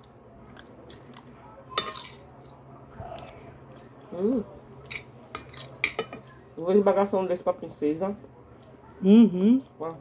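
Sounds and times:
chewing: 0.0 - 4.2.

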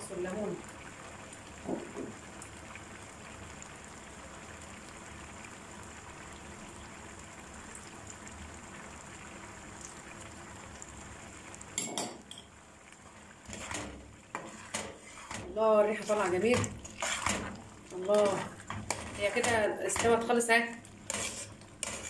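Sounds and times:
jam bubbling in a pot: 0.0 - 22.0
metal clattering on a pot: 11.8 - 12.5.

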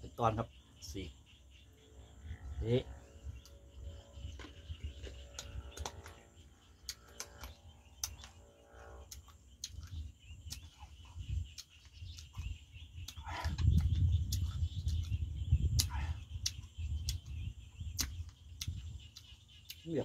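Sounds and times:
insect drone: 0.0 - 20.0
wind rumble on microphone: 2.0 - 19.8
chewing crisp fruit: 9.0 - 19.9.

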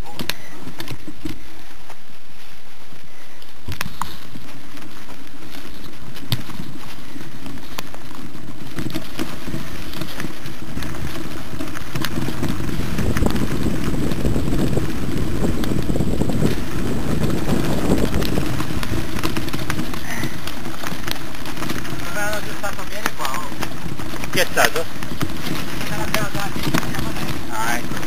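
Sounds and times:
bike clicks and rattles: 0.0 - 28.0
wind rumble on microphone: 0.0 - 28.0.

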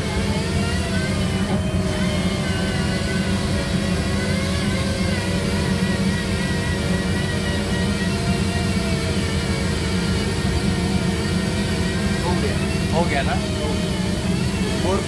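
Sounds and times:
low mechanical drone: 0.0 - 15.0.

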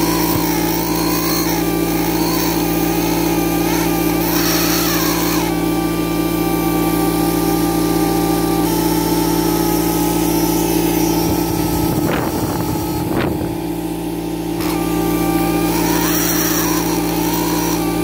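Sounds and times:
pneumatic air scribe buzzing: 0.0 - 18.0
rumbling handling noise: 9.6 - 18.0.

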